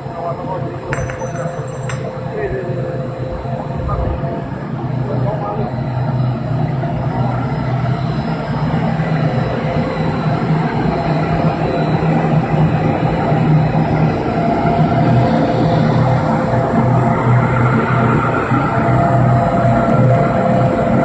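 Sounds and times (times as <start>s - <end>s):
thin high whine: 0.0s - 20.8s
machinery hum: 0.0s - 21.0s.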